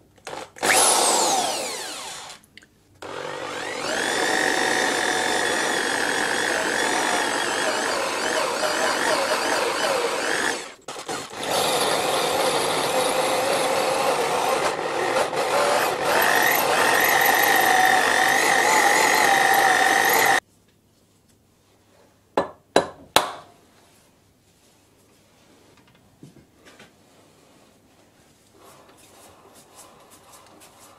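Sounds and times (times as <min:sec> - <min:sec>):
drill bit grinding into metal: 0:03.0 - 0:20.4.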